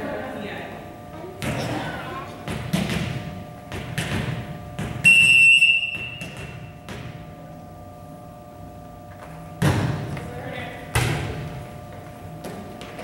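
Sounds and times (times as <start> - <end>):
referee's whistle: 5.0 - 6.4.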